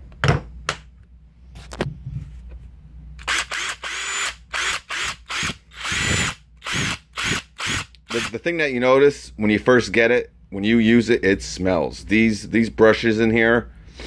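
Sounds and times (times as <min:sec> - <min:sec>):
impact driver motor whirring: 0:03.2 - 0:08.4.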